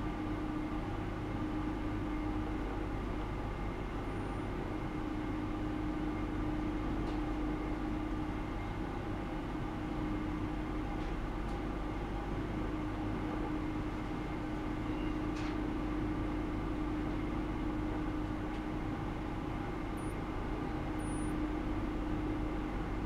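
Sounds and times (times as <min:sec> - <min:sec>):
electrical hum of equipment: 0:00.0 - 0:23.0
faint high beeps: 0:20.0 - 0:20.2, 0:21.0 - 0:21.4.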